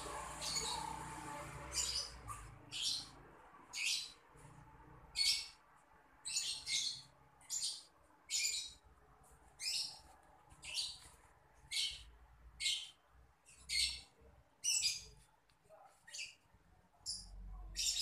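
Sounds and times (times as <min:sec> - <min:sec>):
bird harsh chirps: 0:00.1 - 0:01.1, 0:06.2 - 0:08.9, 0:09.6 - 0:15.3.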